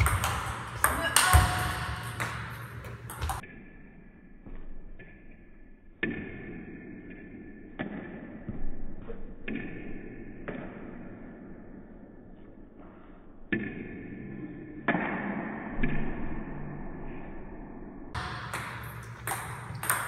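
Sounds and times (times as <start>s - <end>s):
table tennis ball clacks: 18.2s - 20.0s.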